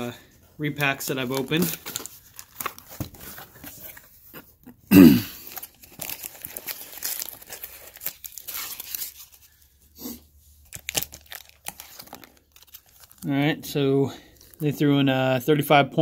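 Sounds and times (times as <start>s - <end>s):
foil packs crinkling: 0.6s - 4.1s, 5.4s - 9.9s, 10.5s - 13.3s
foam peanuts rustling and squeaking: 5.5s - 9.9s, 10.5s - 13.4s.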